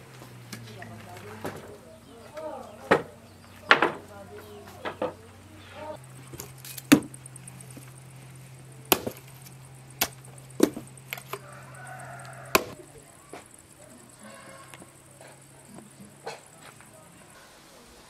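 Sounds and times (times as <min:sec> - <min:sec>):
cleaver chopping pumpkin: 0:06.3 - 0:07.2, 0:08.8 - 0:11.5, 0:12.2 - 0:12.8.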